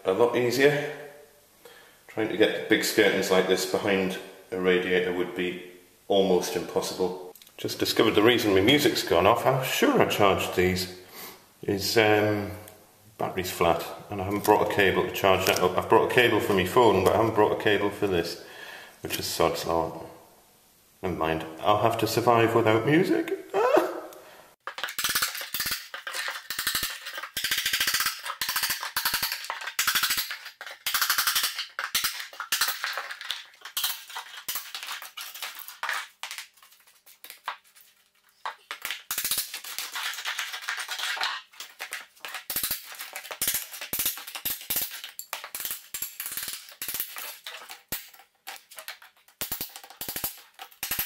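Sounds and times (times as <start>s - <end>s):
rubble rattling down: 24.6s - 51.0s.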